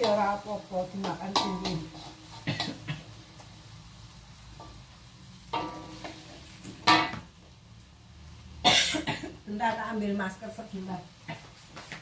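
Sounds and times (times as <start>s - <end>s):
faint hiss of wok cooking: 0.0s - 12.0s
spatula clattering against wok: 1.0s - 3.0s, 5.5s - 6.2s.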